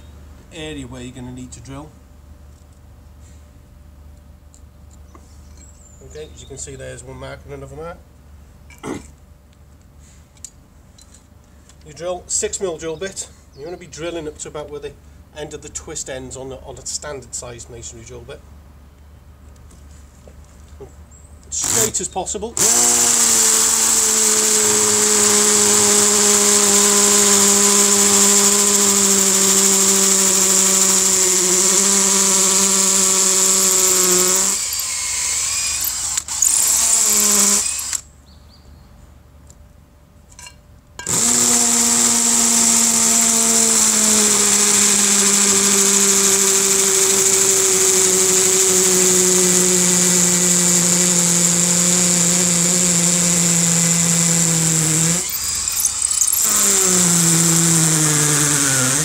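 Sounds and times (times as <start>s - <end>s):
hammer drill boring into brick: 21.5s - 22.0s, 22.6s - 38.1s, 41.0s - 59.0s.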